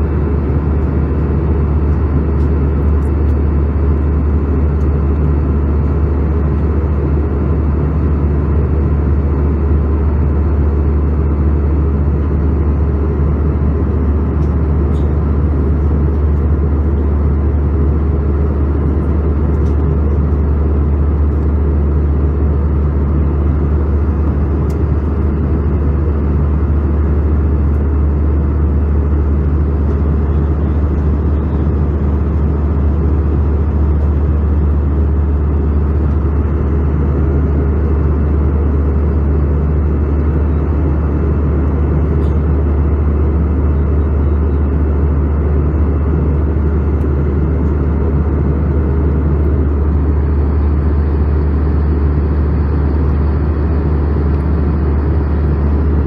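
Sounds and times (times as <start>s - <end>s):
airplane cabin engine rumble: 0.0s - 56.0s.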